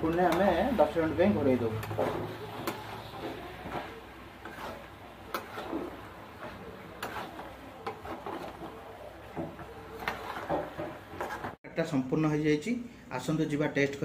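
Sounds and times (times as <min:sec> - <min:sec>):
metal spatula stirring curry: 0:00.0 - 0:11.6
spatula scraping and knocking pan: 0:00.0 - 0:11.6.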